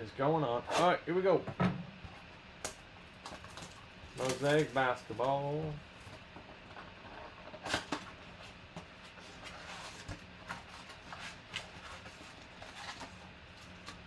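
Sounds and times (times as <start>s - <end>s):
plastic wrapper crinkling: 3.2s - 5.3s.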